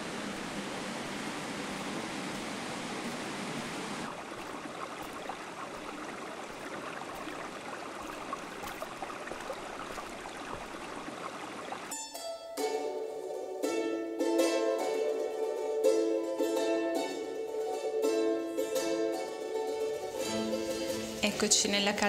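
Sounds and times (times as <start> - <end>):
stream rushing over rocks: 0.0 - 11.9
plucked-string music: 11.9 - 22.0.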